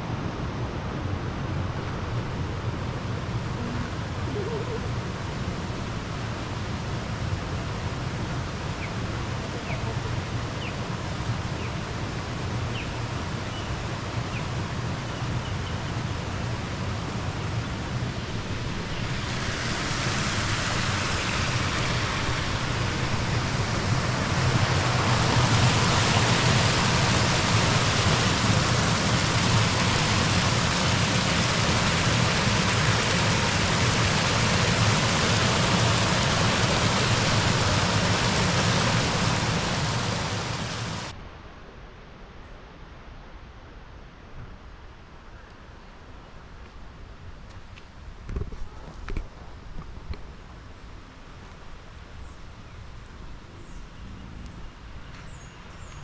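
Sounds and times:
flowing water: 0.0 - 41.2
faint bird chirps: 55.0 - 56.0.

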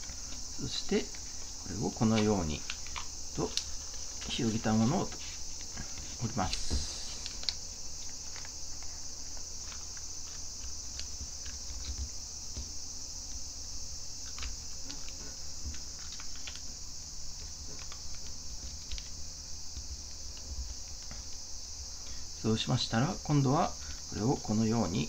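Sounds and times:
steady high-pitched hiss: 0.0 - 25.0
paper being folded and creased: 14.2 - 16.7.

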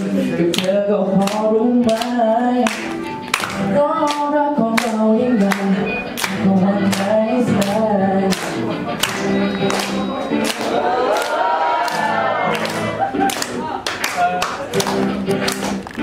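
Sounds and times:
man singing through microphone: 0.0 - 3.0, 3.7 - 10.4
music: 0.0 - 16.0
sharp taps or claps: 0.6 - 4.2, 4.8 - 16.0.

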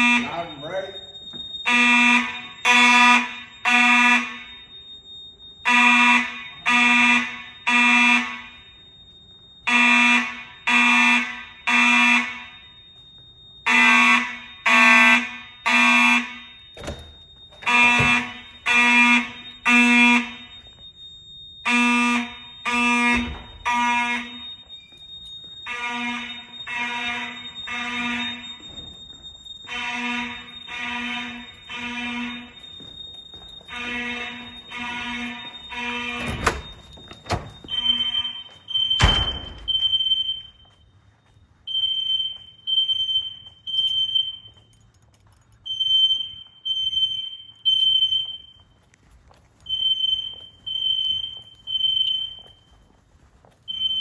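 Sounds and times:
fire alarm horns buzzing: 0.0 - 54.0
steady high tone: 12.4 - 39.6
door thudding: 16.8 - 18.4, 23.1 - 23.8, 34.1 - 38.2, 39.0 - 39.8.

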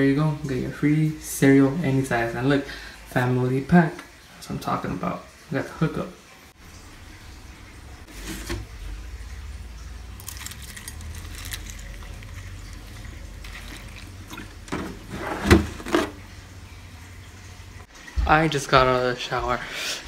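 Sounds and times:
milk pouring into cereal bowl: 9.1 - 15.1.

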